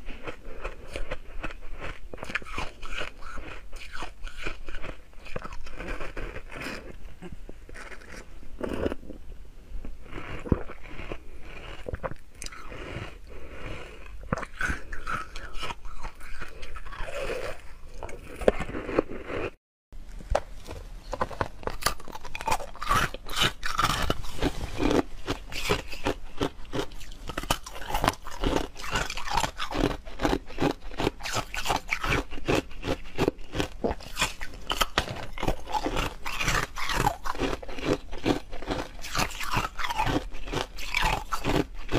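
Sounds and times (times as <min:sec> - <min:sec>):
crunching ice in mouth: 0:00.0 - 0:07.0, 0:10.0 - 0:19.6, 0:21.2 - 0:41.9.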